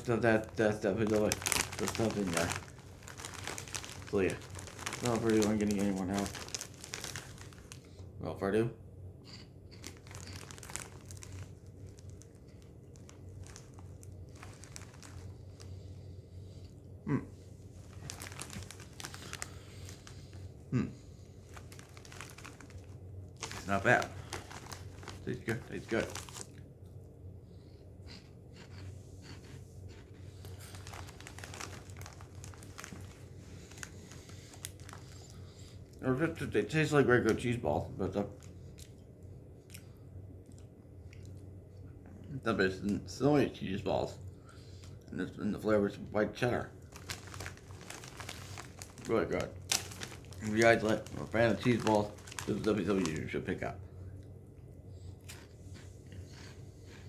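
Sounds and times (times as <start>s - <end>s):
chewing crunchy snacks: 0.0s - 8.0s, 9.2s - 15.9s, 17.8s - 26.7s, 28.1s - 36.0s, 38.2s - 41.5s, 46.8s - 53.3s, 55.1s - 57.0s
foil snack bag crinkling: 0.0s - 8.0s, 9.8s - 15.9s, 17.8s - 26.6s, 28.6s - 39.0s, 44.0s - 53.7s, 55.2s - 57.0s
steady low hum: 0.0s - 57.0s.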